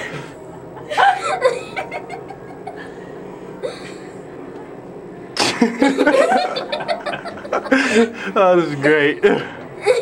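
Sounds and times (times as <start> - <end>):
person laughing: 0.0 - 3.0, 5.4 - 8.3.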